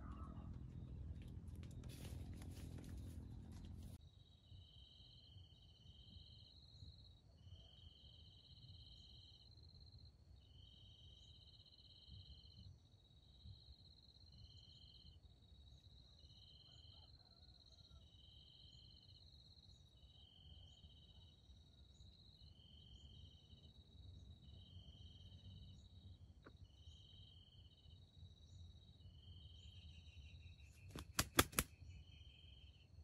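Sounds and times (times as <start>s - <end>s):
chirping insects: 0.0s - 33.0s
sharp clicks: 30.9s - 31.7s.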